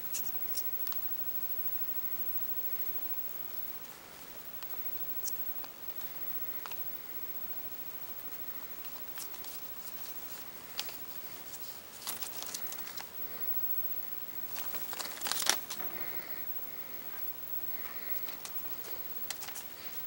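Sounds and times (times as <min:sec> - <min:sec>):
newspaper crinkling and rustling: 0:08.8 - 0:13.2, 0:14.4 - 0:16.3, 0:17.8 - 0:20.0.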